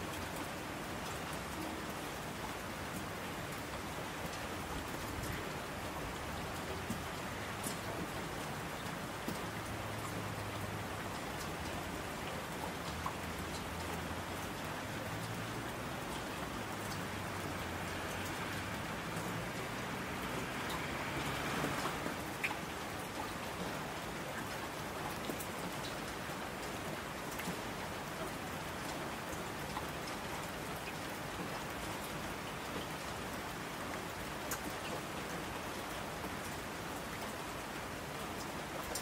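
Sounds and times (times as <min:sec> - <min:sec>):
steady rain falling: 0:00.0 - 0:39.0
raindrop ticks: 0:06.4 - 0:08.2, 0:08.8 - 0:33.0, 0:34.2 - 0:36.6, 0:38.4 - 0:39.0.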